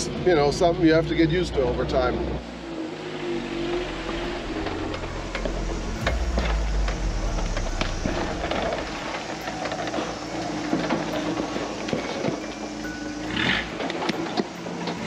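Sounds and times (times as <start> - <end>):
truck engine rumbling: 2.4 - 15.0.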